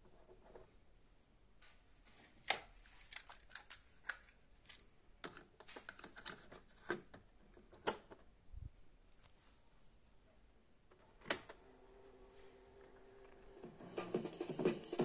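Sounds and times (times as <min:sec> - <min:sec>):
plastic clicks and rattles: 0:02.4 - 0:08.3.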